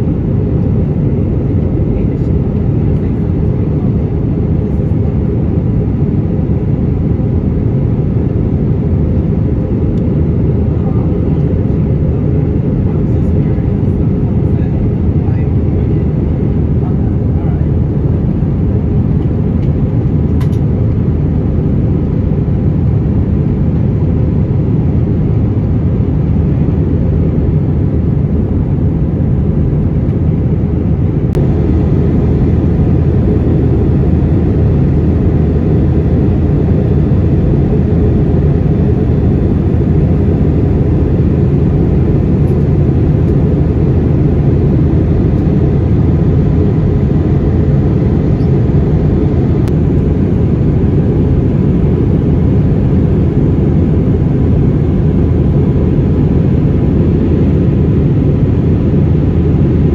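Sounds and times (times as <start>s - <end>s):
airplane cabin engine rush: 0.0s - 59.9s
faint click: 20.4s - 20.6s.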